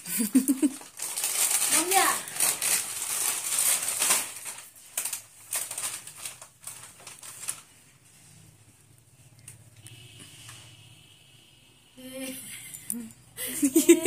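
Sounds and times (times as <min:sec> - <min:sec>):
plastic chips packet crinkling: 0:00.5 - 0:07.7.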